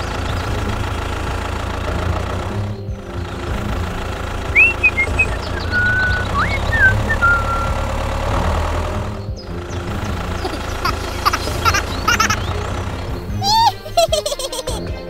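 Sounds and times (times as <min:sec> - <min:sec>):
engine idling with knocking rumble: 0:00.0 - 0:13.5
short chirping whistles: 0:04.6 - 0:07.8.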